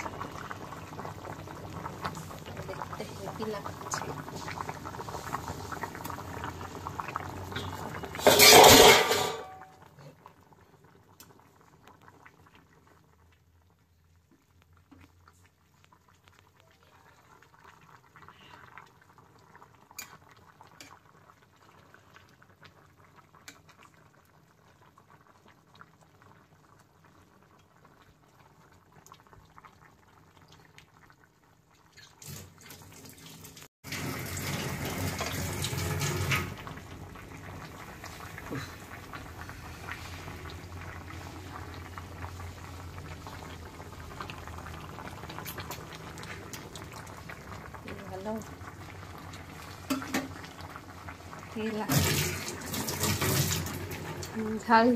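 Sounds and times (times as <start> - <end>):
stew bubbling: 0.0 - 32.9, 33.5 - 54.9
metal spatula scraping a pan: 7.6 - 9.6.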